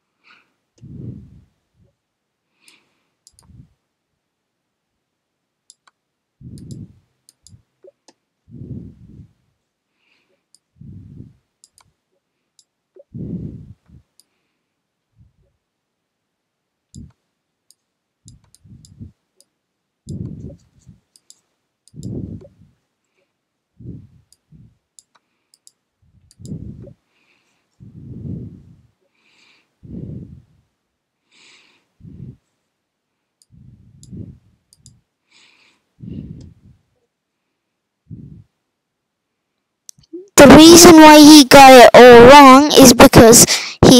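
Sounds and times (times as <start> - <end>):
muffled breath puffs: 0.0 - 1.9, 2.5 - 3.8, 6.4 - 7.7, 8.4 - 11.5, 13.0 - 15.4, 18.3 - 19.2, 20.1 - 21.1, 21.9 - 25.5, 26.1 - 30.7, 31.3 - 32.6, 33.5 - 37.0, 38.0 - 38.6, 43.4 - 43.8
computer mouse clicking: 2.6 - 3.5, 5.7 - 8.2, 11.6 - 11.9, 16.9 - 19.5, 20.1 - 22.5, 24.3 - 26.9, 33.4 - 35.0.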